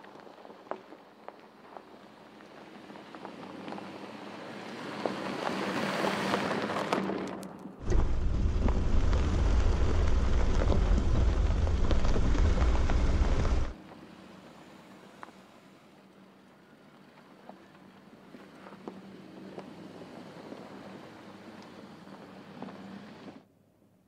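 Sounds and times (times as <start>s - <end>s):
tyres crunching over gravel: 0.0s - 13.8s.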